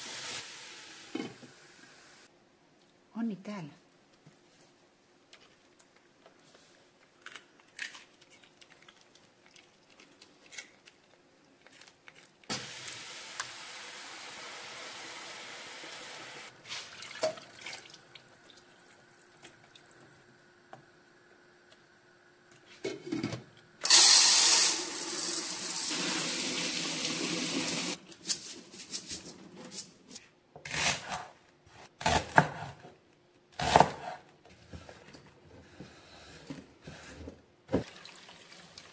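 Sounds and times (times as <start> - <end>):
water running from tap: 23.8 - 28.0.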